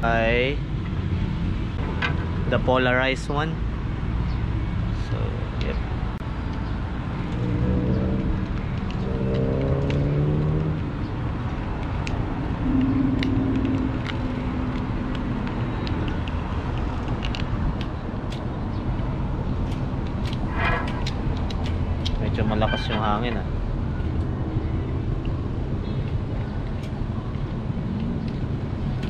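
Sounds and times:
wind buffeting microphone: 0:10.9 - 0:24.4
low drone: 0:11.8 - 0:16.2.

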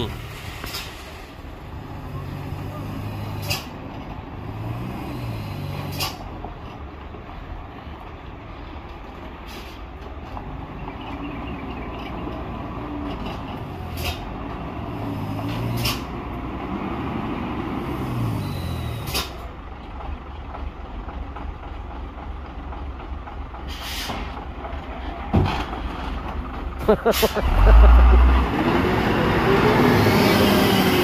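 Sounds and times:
diesel truck engine revving: 0:00.0 - 0:06.6, 0:10.4 - 0:20.2, 0:25.7 - 0:31.0
air brake hisses: 0:23.7 - 0:24.3.

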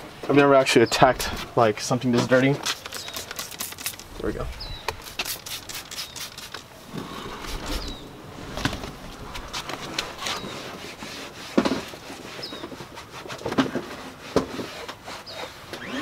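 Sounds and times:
towel scrubbing car trim: 0:02.2 - 0:04.0, 0:05.0 - 0:06.6
bird chirping: 0:02.7 - 0:06.5, 0:07.4 - 0:08.2.

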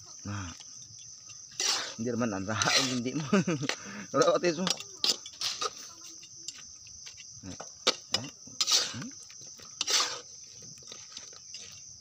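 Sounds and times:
crickets chirring: 0:00.0 - 0:12.0
metal tongs scraping a wok: 0:01.2 - 0:02.0, 0:02.6 - 0:03.1, 0:04.6 - 0:06.6, 0:07.9 - 0:09.0, 0:09.8 - 0:10.3.

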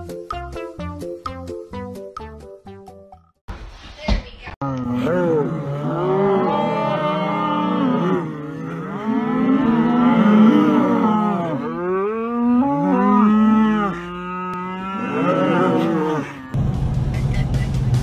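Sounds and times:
cattle mooing: 0:04.6 - 0:16.6.

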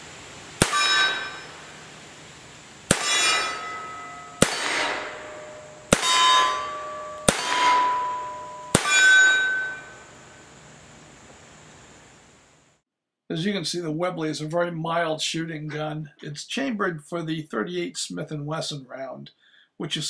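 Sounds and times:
metallic ringing tone: 0:00.6 - 0:01.8, 0:03.0 - 0:10.6
revolver shots: 0:02.9 - 0:10.0.

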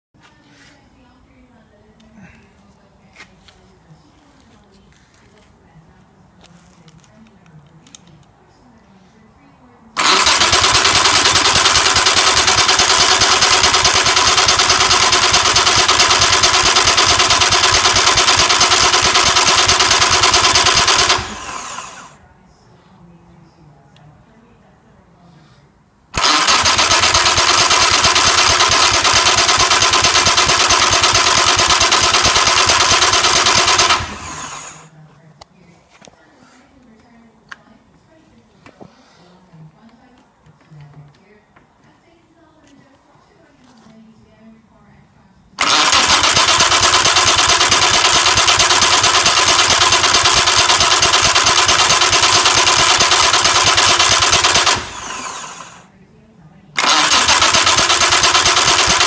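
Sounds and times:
starter motor cranking engine: 0:10.0 - 0:22.2, 0:26.1 - 0:34.9, 0:45.6 - 0:55.9, 0:56.8 - 0:59.0.

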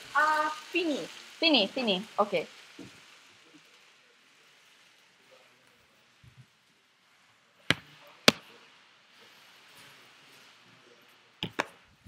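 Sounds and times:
sharp knocks: 0:07.7 - 0:08.4.

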